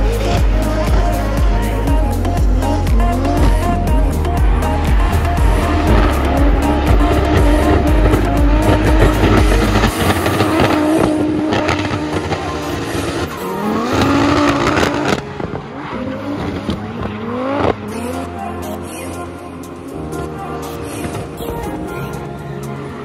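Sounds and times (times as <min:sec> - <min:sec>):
car engine revving hard: 0:00.0 - 0:18.3.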